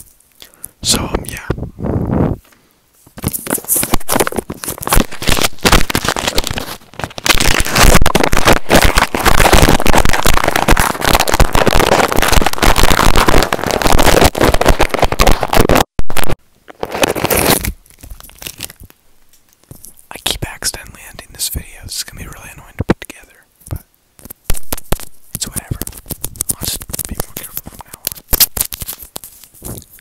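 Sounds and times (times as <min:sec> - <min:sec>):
packaging wrapper crinkling: 0:03.2 - 0:15.9, 0:16.7 - 0:20.8, 0:24.2 - 0:30.0.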